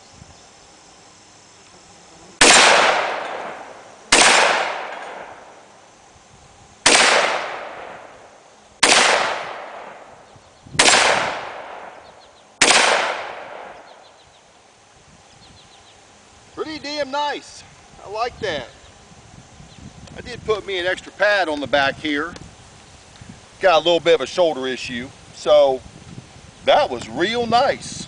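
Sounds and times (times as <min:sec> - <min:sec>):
shotgun shots: 0:02.4 - 0:05.5, 0:06.8 - 0:08.1, 0:08.8 - 0:10.2, 0:10.8 - 0:12.0, 0:12.6 - 0:13.9.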